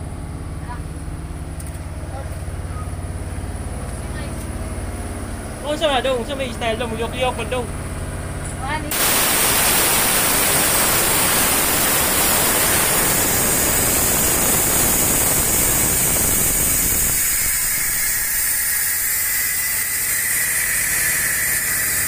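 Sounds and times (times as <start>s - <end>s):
loud steady hiss: 8.9s - 22.0s.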